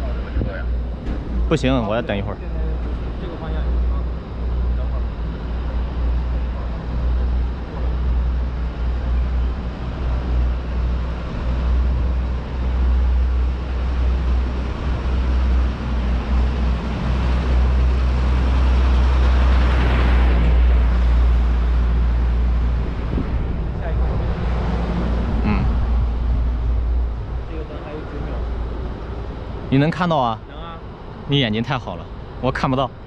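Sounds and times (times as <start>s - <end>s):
truck passing by: 0.0s - 33.0s
wind buffeting microphone: 7.3s - 29.8s.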